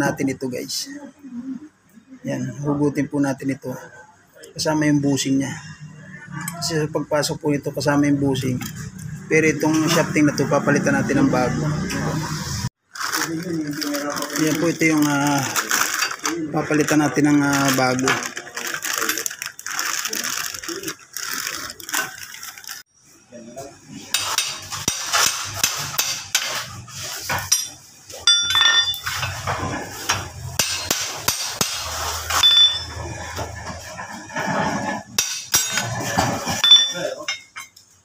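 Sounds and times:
metal tools clicking and scraping: 0:27.3 - 0:29.5, 0:30.1 - 0:33.2, 0:35.2 - 0:37.9
ringing metal clinks: 0:27.5 - 0:29.3, 0:32.3 - 0:33.0, 0:36.6 - 0:37.8.

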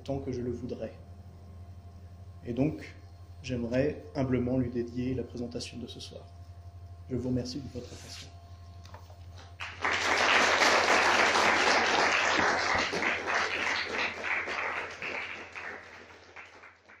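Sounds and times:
audience applauding: 0:09.6 - 0:17.0.

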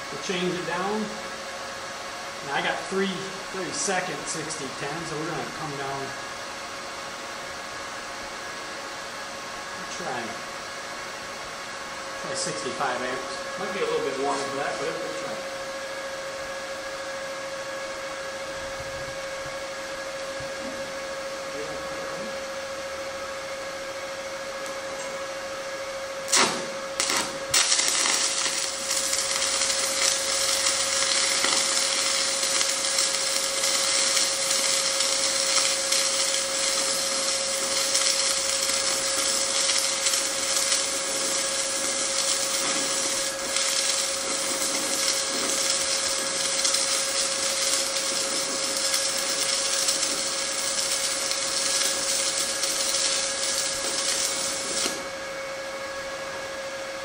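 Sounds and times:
welder hum: 0:00.0 - 0:57.0
welding arc crackling: 0:02.4 - 0:06.1, 0:12.2 - 0:15.4, 0:26.3 - 0:55.2
arc strikes: 0:26.2 - 0:55.2.

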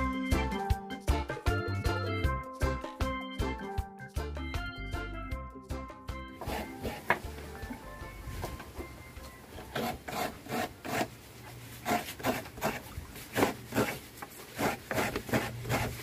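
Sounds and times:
coconut scraping on hand grater: 0:06.4 - 0:07.2, 0:09.6 - 0:16.0.

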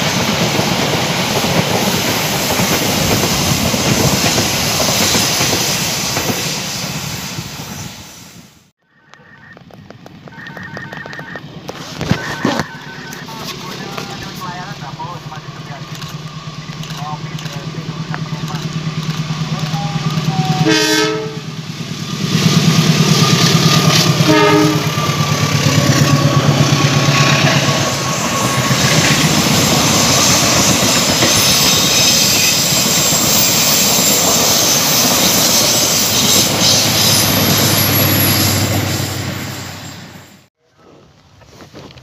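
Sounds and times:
train wheels clattering on rails: 0:00.0 - 0:07.0, 0:15.8 - 0:20.6, 0:21.7 - 0:38.8
locomotive engine running: 0:09.1 - 0:40.4
locomotive horn: 0:19.6 - 0:21.6, 0:23.8 - 0:26.6.

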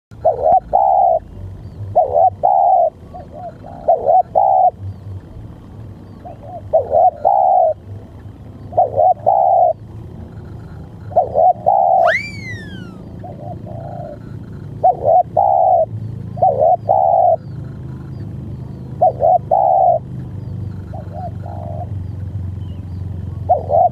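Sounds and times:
dove cooing: 0:00.2 - 0:01.3, 0:02.0 - 0:04.8, 0:06.3 - 0:07.8, 0:08.7 - 0:09.8, 0:11.1 - 0:17.4, 0:19.0 - 0:20.0, 0:20.9 - 0:21.9, 0:23.3 - 0:23.9
high whistle-like note: 0:12.0 - 0:13.0.

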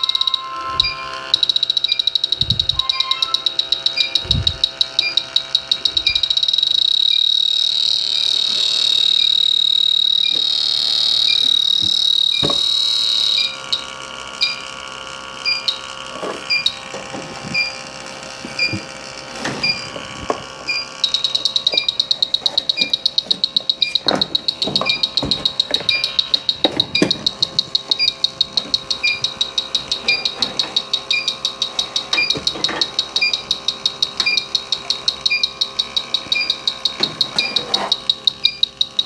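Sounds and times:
steady ticking: 0:00.0 - 0:12.4, 0:20.7 - 0:39.0
rapid beeping: 0:00.0 - 0:14.8, 0:15.4 - 0:16.9, 0:19.6 - 0:20.0, 0:20.6 - 0:39.0
high alarm tone: 0:00.0 - 0:39.0.

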